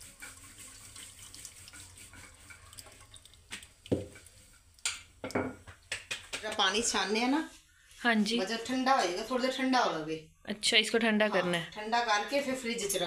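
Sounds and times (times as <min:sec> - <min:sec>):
water trickling through strainer: 0:00.0 - 0:05.3.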